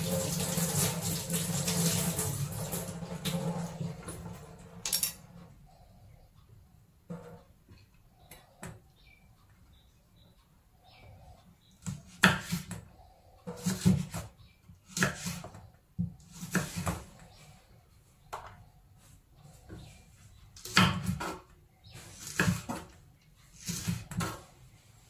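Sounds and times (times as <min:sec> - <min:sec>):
knife chopping on wooden board: 0:11.8 - 0:12.8, 0:13.5 - 0:14.3, 0:14.9 - 0:17.1, 0:20.6 - 0:21.4, 0:22.0 - 0:23.0, 0:23.6 - 0:24.4.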